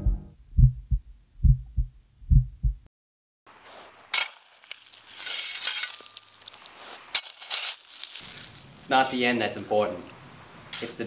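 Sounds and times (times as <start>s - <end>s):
heartbeat thumps: 0.0s - 2.9s
footsteps on pebbles and shells: 3.5s - 11.0s.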